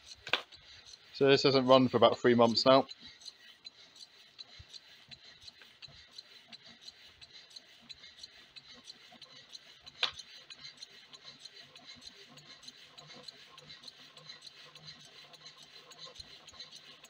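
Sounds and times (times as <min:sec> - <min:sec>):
engine pistons ticking: 0:00.0 - 0:17.0
sharp click: 0:00.1 - 0:00.6, 0:09.9 - 0:10.2.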